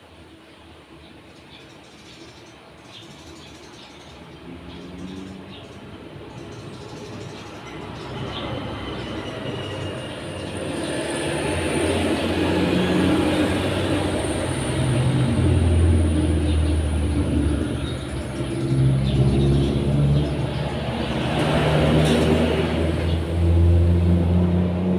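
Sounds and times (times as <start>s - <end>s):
engine running: 9.5s - 24.9s.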